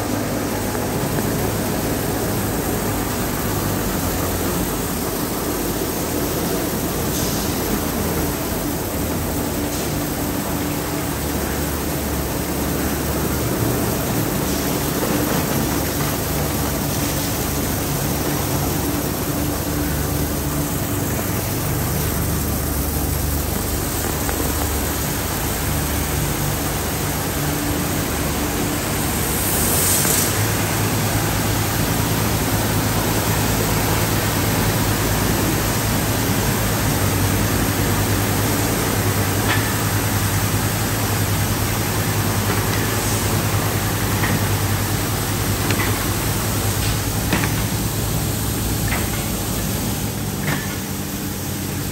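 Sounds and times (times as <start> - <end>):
motors and pumps humming: 0.0 - 51.9.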